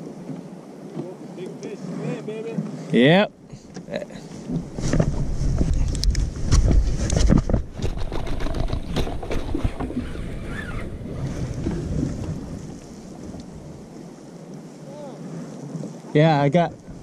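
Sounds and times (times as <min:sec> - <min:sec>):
wind rumbling on microphone: 0:04.2 - 0:17.0.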